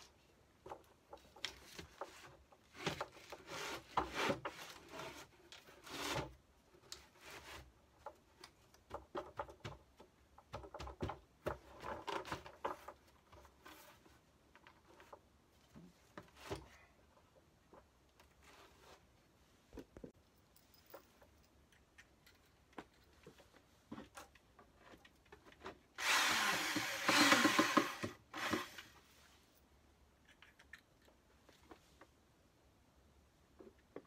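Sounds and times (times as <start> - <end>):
power drill running: 26.0 - 28.9.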